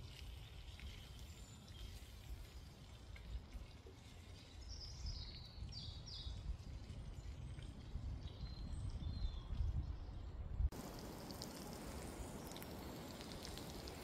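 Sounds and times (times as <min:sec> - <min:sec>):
wild birds chirping: 0:11.0 - 0:14.0.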